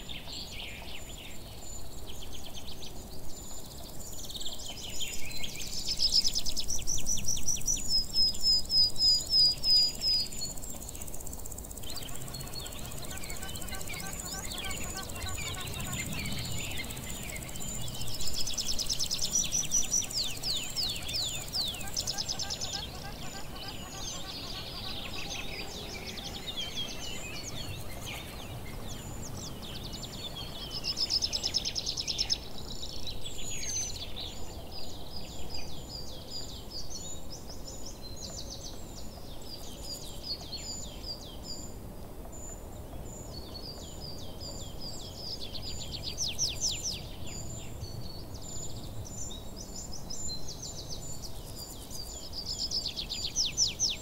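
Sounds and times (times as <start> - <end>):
birds chirping and trilling: 9.4 - 35.3.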